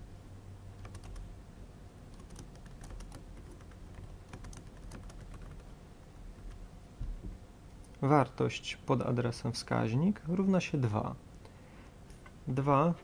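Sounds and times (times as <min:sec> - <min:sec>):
low steady hum: 0:00.0 - 0:13.0
typing on computer keyboard: 0:00.8 - 0:01.3, 0:02.1 - 0:05.7.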